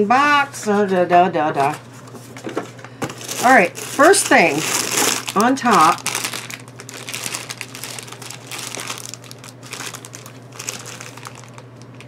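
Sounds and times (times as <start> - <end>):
plastic bag crinkling: 3.0 - 12.0.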